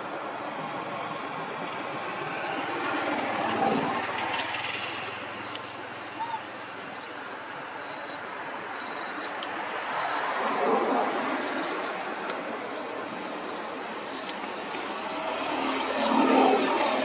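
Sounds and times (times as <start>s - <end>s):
steady rushing background: 9.4s - 17.0s.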